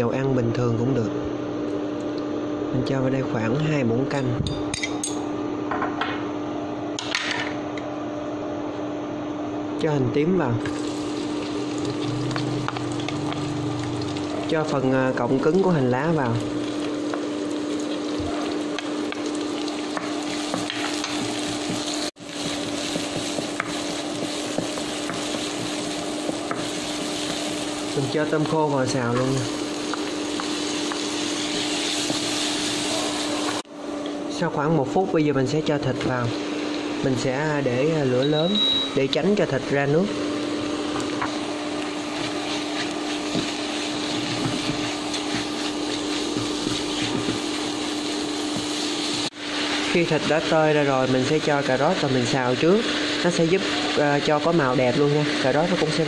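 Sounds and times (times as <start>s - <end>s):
induction cooktop hum: 0.0s - 56.0s
shallots sizzling in oil: 10.7s - 14.7s, 15.8s - 33.6s, 40.2s - 56.0s
wooden spatula scraping a wok: 41.3s - 50.0s.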